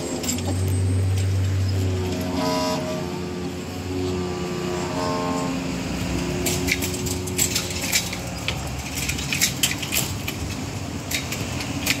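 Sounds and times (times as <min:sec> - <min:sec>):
metal barrier skirt rattling: 0:06.2 - 0:12.0.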